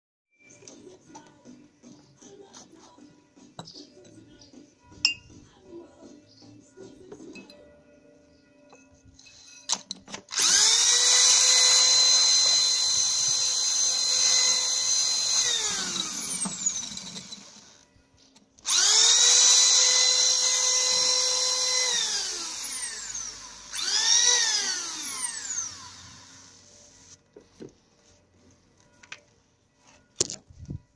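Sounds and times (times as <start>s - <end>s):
electric drill whining: 9.2s - 17.9s, 18.6s - 27.2s.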